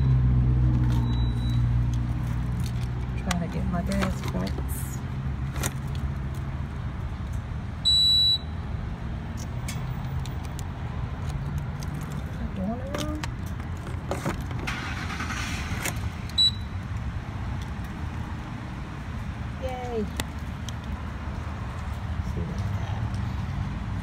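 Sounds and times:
low hum of vehicles: 0:00.0 - 0:24.0
card reader beeping: 0:01.0 - 0:01.6, 0:16.3 - 0:16.7.

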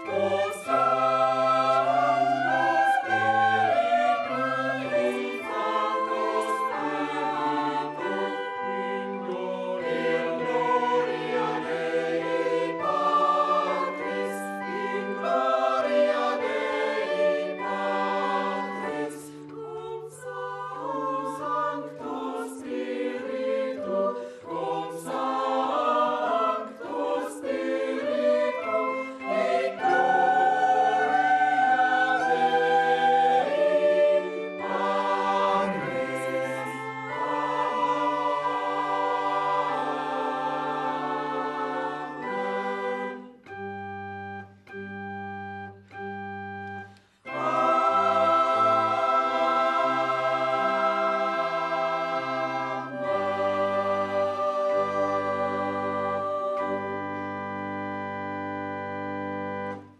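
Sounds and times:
choir singing: 0:00.0 - 0:59.9.

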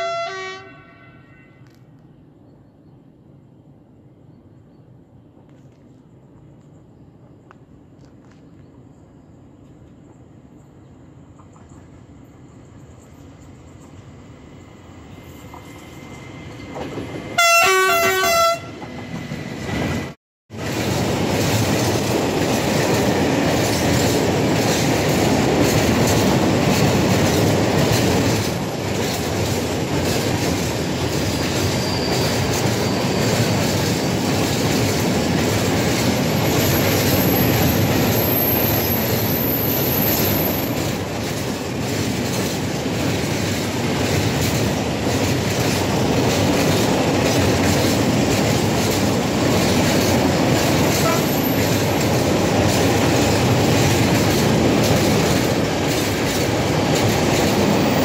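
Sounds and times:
locomotive horn: 0:00.0 - 0:01.8, 0:17.4 - 0:18.9, 0:50.8 - 0:51.8
wheels clicking over rail joints: 0:20.6 - 0:38.1, 0:40.6 - 0:58.0.

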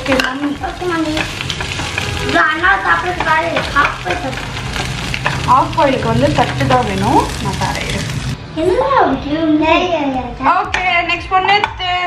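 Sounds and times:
eggs sizzling in a frying pan: 0:00.0 - 0:08.4.

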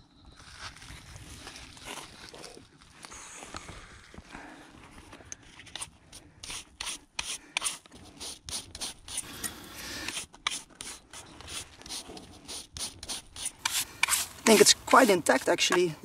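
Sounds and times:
hand brush scrubbing rusted steel: 0:05.7 - 0:16.0.

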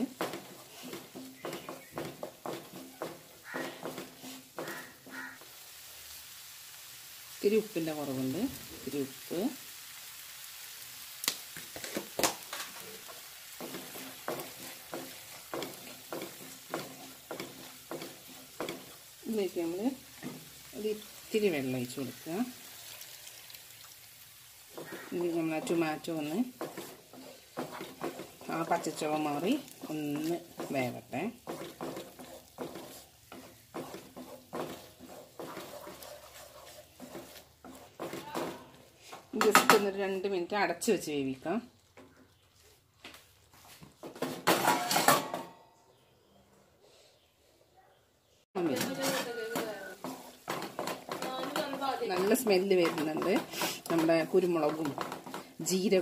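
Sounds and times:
wooden spatula scraping a pan: 0:00.0 - 0:05.4, 0:11.7 - 0:22.7, 0:24.6 - 0:40.0, 0:48.6 - 0:56.0
masala sizzling in a pan: 0:00.0 - 0:45.4, 0:48.5 - 0:56.0.

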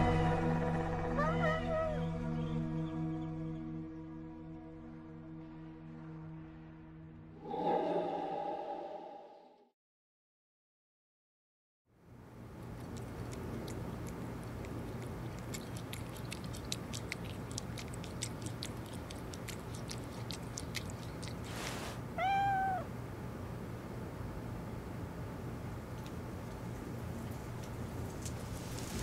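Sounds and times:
cat meowing: 0:01.2 - 0:02.1, 0:22.1 - 0:22.9
cat eating wet clicks: 0:12.4 - 0:21.9
brief hiss: 0:21.5 - 0:22.0.

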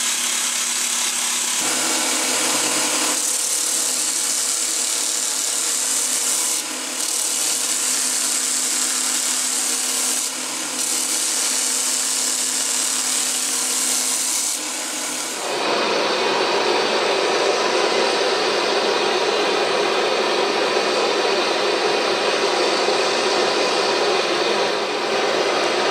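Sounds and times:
belt grinder grinding steel blade: 0:00.0 - 0:15.5.

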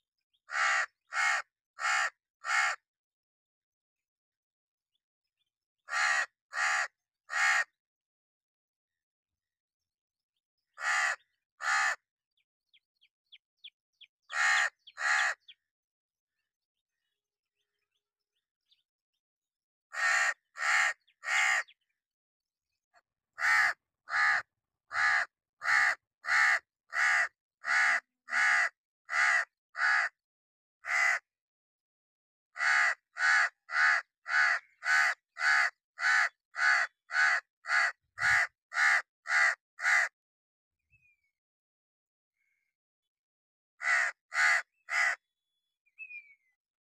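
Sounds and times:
crow cawing: 0:00.5 - 0:02.9, 0:05.8 - 0:07.8, 0:10.8 - 0:12.1, 0:14.3 - 0:15.6, 0:19.9 - 0:21.8, 0:23.4 - 0:30.2, 0:30.8 - 0:31.3, 0:32.6 - 0:40.2, 0:43.8 - 0:45.2.

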